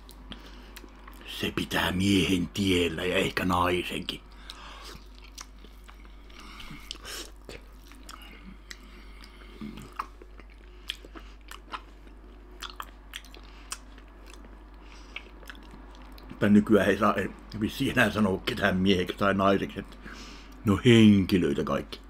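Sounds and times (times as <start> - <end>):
man chewing with smacking sounds: 0.0 - 1.3, 4.1 - 16.4, 19.8 - 20.6.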